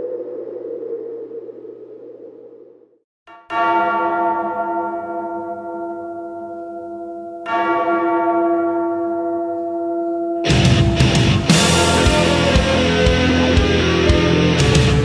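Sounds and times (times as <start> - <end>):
large bell tolling: 3.3 - 15.0.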